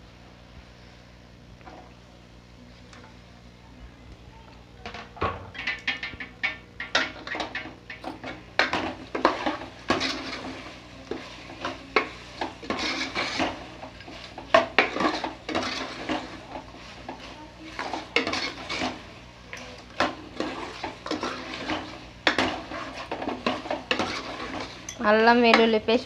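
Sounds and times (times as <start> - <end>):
spoon scraping metal pot: 6.8 - 25.7.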